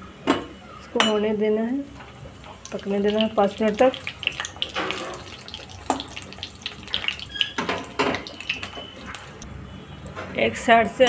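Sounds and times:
oil bubbling and crackling: 2.0s - 9.5s.

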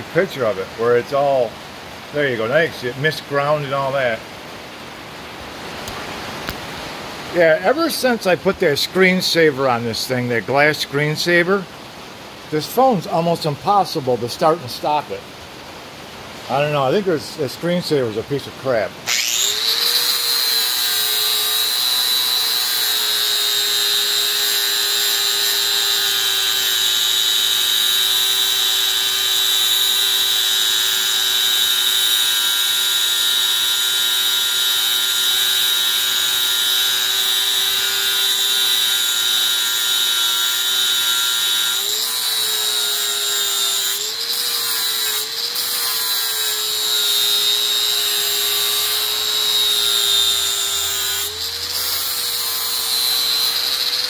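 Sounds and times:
angle grinder grinding steel: 19.1s - 54.0s.

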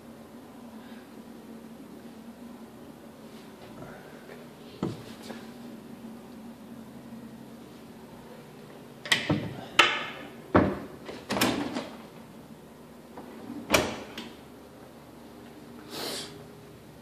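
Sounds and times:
cabinet doors knocking shut: 9.2s - 11.8s.

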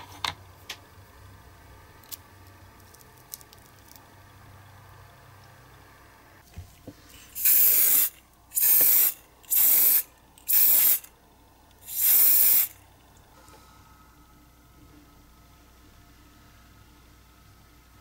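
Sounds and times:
aerosol spray can hissing: 7.3s - 11.1s, 11.8s - 12.8s.

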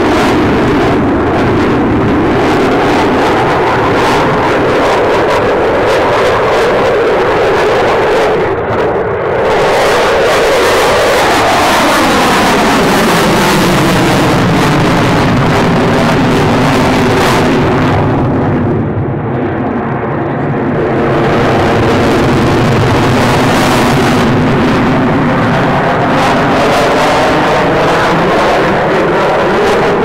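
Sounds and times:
jet engines with afterburners: 0.0s - 30.0s.

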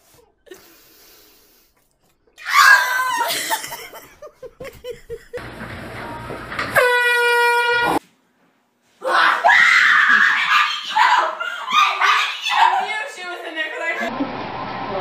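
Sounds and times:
high held cry: 2.4s - 3.5s, 9.0s - 13.3s
person laughing: 3.2s - 5.4s
person shrieking: 9.0s - 12.9s.

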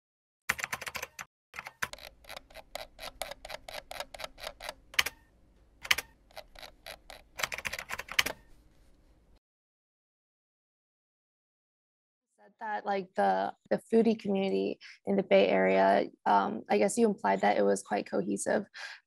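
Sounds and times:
keyboard typing: 0.5s - 8.6s.

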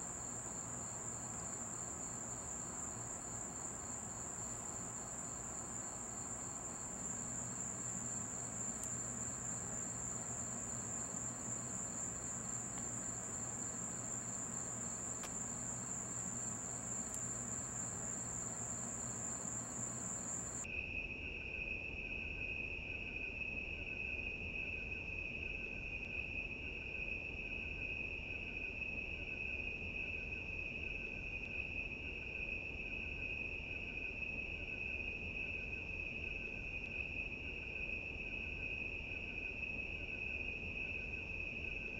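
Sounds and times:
high-pitched insects trilling: 0.0s - 20.6s
lower-pitched insect chorus: 0.0s - 20.7s.

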